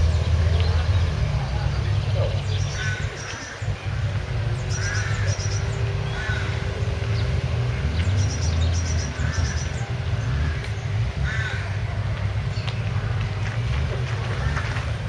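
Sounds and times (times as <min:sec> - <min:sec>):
bird chirping: 0:00.0 - 0:11.0
car engines idling: 0:00.0 - 0:15.0.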